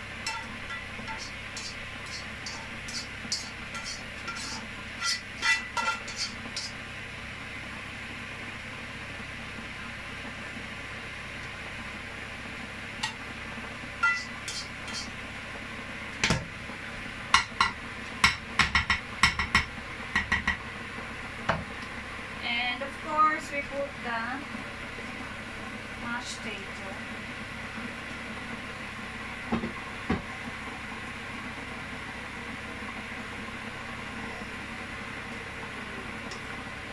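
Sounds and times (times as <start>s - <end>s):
spatula scraping and tapping dish: 0.2s - 6.8s, 14.0s - 15.1s.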